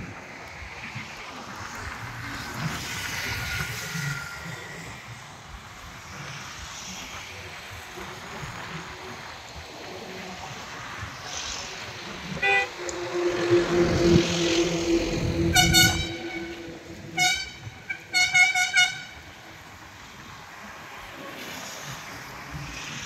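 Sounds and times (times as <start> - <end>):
passing traffic: 0.0 - 23.0
vehicle horns honking: 12.4 - 19.2.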